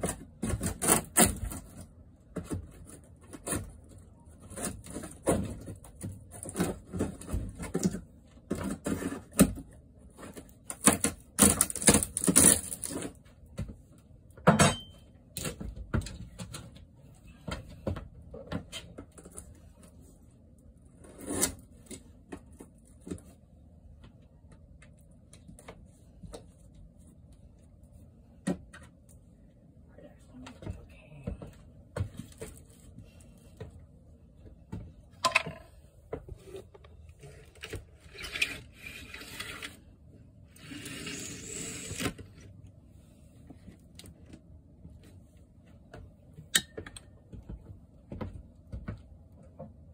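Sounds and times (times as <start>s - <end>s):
wood paneling being pried off: 0.0s - 13.2s.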